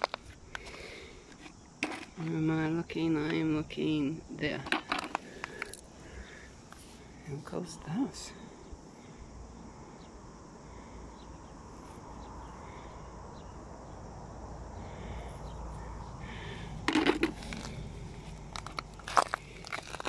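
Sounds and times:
shells and pebbles crunching: 0.0s - 2.4s, 4.5s - 6.9s, 16.3s - 20.0s
low background rumble: 8.6s - 20.0s.

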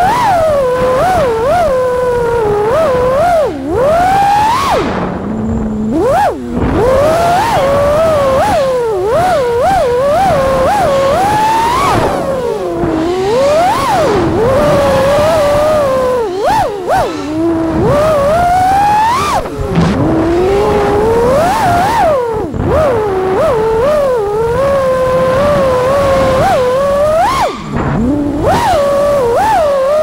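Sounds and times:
drone motors and propellers whining: 0.0s - 30.0s.

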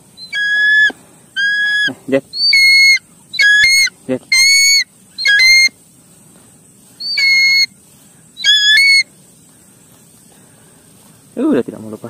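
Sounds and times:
hawk-eagle shrill whistled calls: 0.2s - 5.8s, 7.0s - 7.8s, 8.4s - 9.1s.

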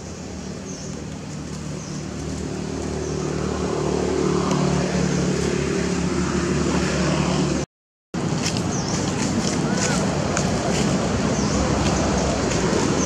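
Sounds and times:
vehicle engine running: 0.0s - 7.6s.

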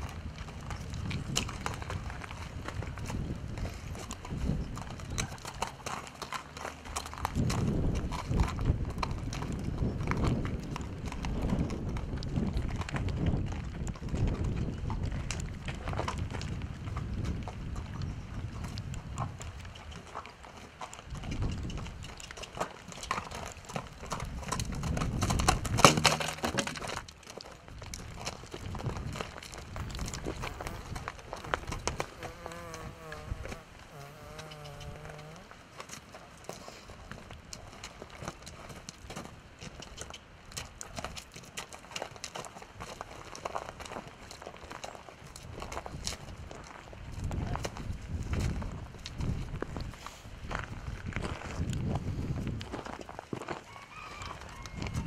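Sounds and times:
hooves walking on gravel: 0.0s - 55.0s
sharp knock: 25.8s - 26.9s.

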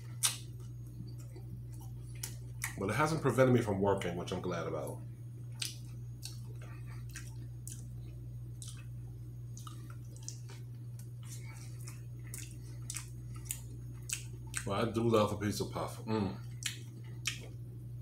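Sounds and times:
man chewing food: 0.0s - 2.8s, 5.3s - 15.0s, 16.3s - 18.0s
steady low hum: 0.0s - 18.0s.

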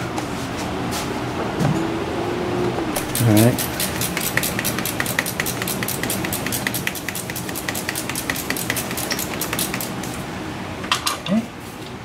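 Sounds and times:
ratchet wrench clicking: 3.0s - 10.0s.

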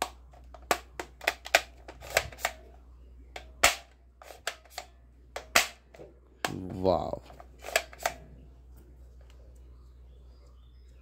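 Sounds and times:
toy rifle plastic clicks: 0.0s - 2.6s, 7.6s - 8.2s.

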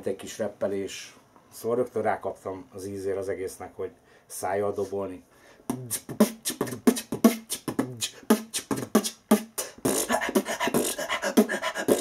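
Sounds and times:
man beatboxing: 5.7s - 12.0s.

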